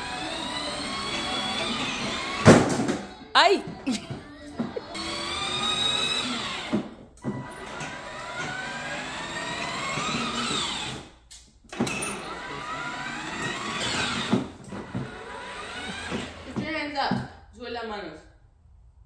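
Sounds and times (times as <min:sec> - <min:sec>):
toy car electric motor whining: 0:00.0 - 0:02.6, 0:04.2 - 0:11.2, 0:11.8 - 0:16.6.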